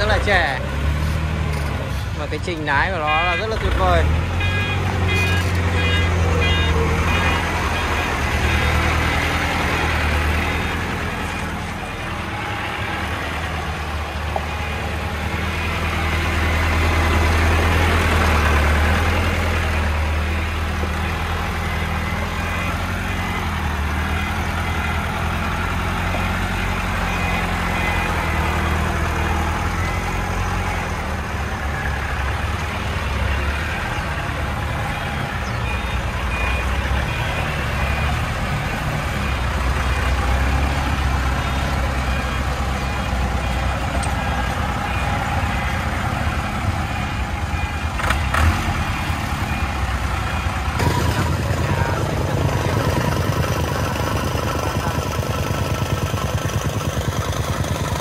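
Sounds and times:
truck engine running: 0.0s - 58.0s.

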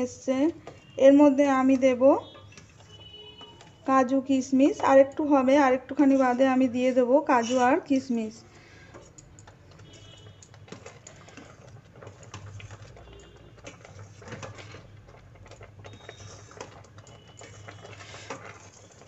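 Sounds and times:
metal spoon scraping a steel pot: 7.3s - 7.9s, 9.8s - 19.0s.

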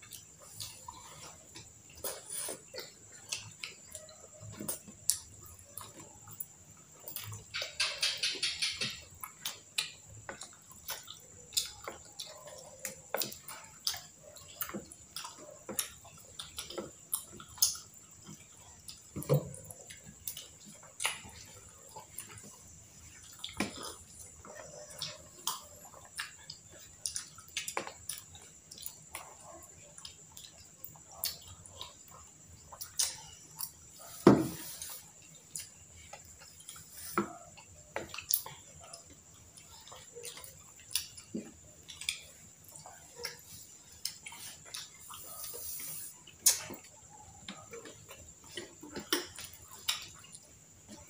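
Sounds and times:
wet chewing and mouth clicks: 0.0s - 51.0s.

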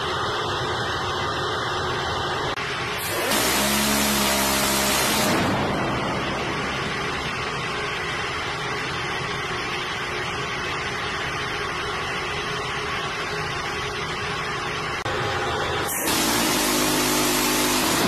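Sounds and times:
ship machinery: 0.0s - 18.0s.

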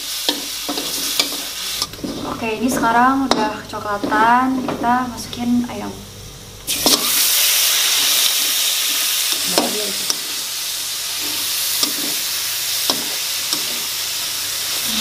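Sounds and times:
chicken sizzling in hot oil: 0.0s - 2.4s, 6.7s - 15.0s
metal spatula scraping wok: 0.3s - 4.7s.

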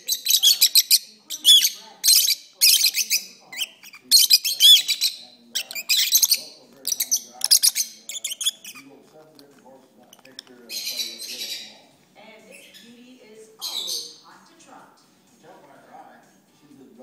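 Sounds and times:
lovebirds twittering and chirping: 0.0s - 14.4s.

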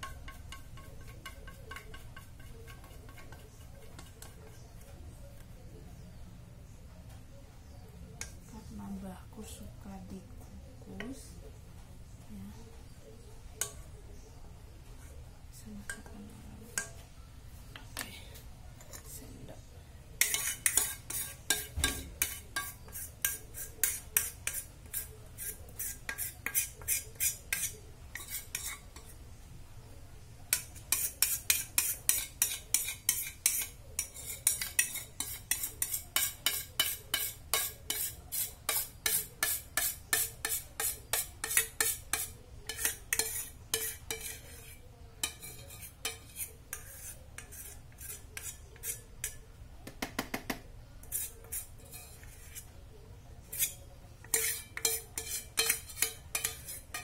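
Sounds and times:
metal spoon scraping metal bowl: 0.0s - 4.9s, 18.8s - 19.2s, 20.2s - 29.2s, 30.5s - 49.4s, 51.0s - 52.8s, 53.4s - 57.0s.

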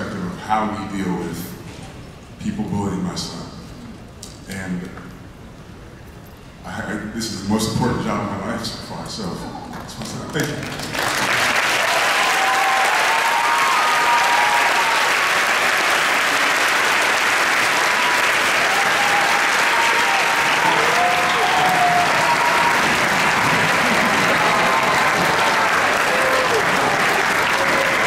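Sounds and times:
audience applauding: 10.4s - 28.0s
voices cheering: 11.4s - 28.0s.

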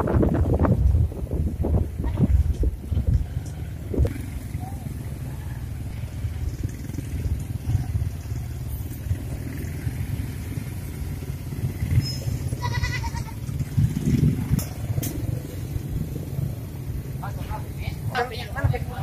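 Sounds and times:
motorcycle engines rumbling: 0.0s - 19.0s
goat bleating: 12.5s - 13.5s.

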